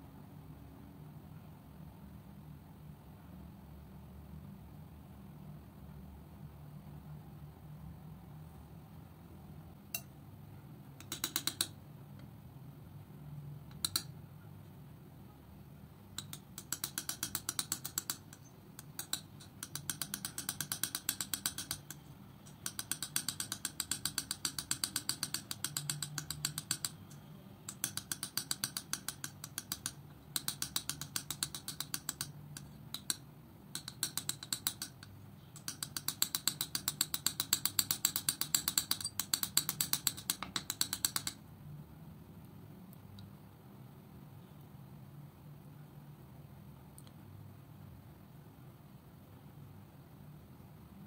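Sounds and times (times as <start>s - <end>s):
palette knife tapping paint: 11.0s - 11.8s, 13.7s - 14.1s, 16.2s - 41.4s.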